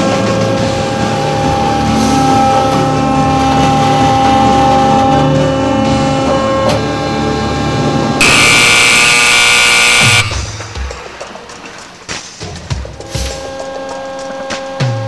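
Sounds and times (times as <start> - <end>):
background music: 0.0 - 15.0
harsh alarm buzzer: 8.2 - 10.6.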